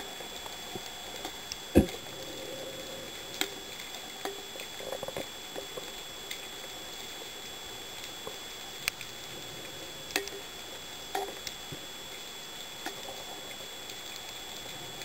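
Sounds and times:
crackles: 0:00.0 - 0:15.0
faint high whine: 0:00.0 - 0:15.0
underwater hiss: 0:01.8 - 0:03.8.

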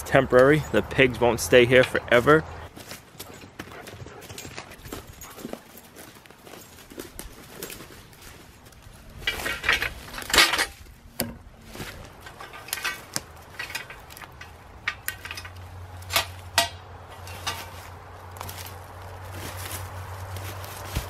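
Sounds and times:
post driver clanking on metal post: 0:09.2 - 0:11.4, 0:12.2 - 0:17.8.

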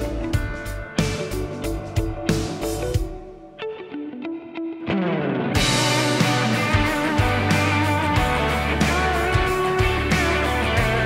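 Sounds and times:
drums and bass: 0:00.0 - 0:03.4, 0:05.6 - 0:11.0
rock music with guitar: 0:00.0 - 0:11.0.

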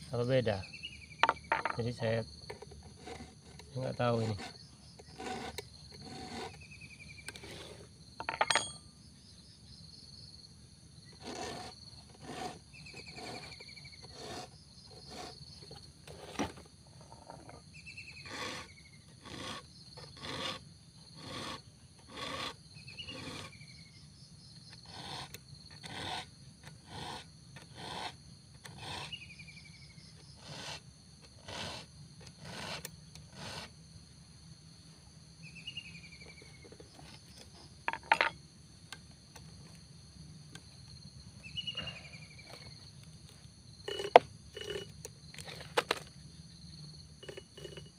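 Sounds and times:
high insect drone: 0:00.0 - 0:47.9
file rasping on chainsaw chain: 0:02.4 - 0:06.6, 0:07.3 - 0:08.8, 0:11.2 - 0:16.3, 0:18.2 - 0:23.6, 0:24.7 - 0:29.3, 0:30.2 - 0:33.8, 0:43.8 - 0:46.0, 0:47.2 - 0:47.9.

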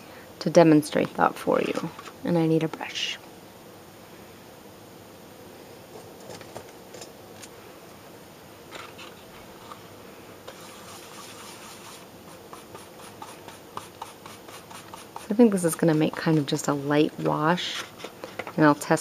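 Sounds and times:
scratchy brush strokes: 0:10.5 - 0:19.0.

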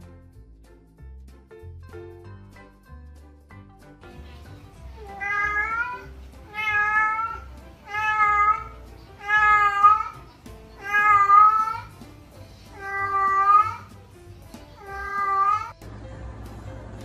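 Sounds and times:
cat meowing loudly: 0:05.0 - 0:10.2, 0:10.8 - 0:11.9, 0:12.8 - 0:13.9, 0:14.8 - 0:15.8.

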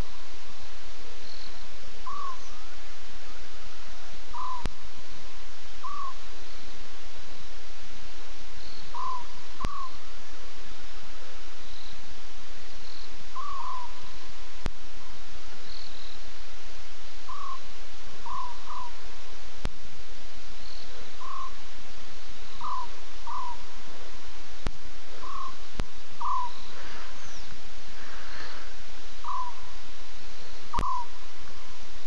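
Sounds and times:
steady hiss: 0:00.0 - 0:32.0
short chirping animal calls: 0:22.6 - 0:23.7, 0:25.2 - 0:25.6, 0:26.2 - 0:29.7, 0:30.7 - 0:31.2.

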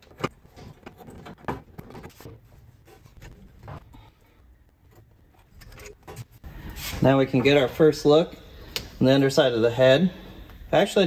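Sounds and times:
metal knocking and scraping: 0:00.0 - 0:04.2.

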